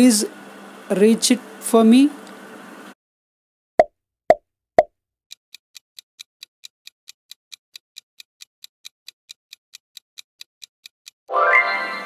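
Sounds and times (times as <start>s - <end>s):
clock ticking: 5.3s - 11.2s.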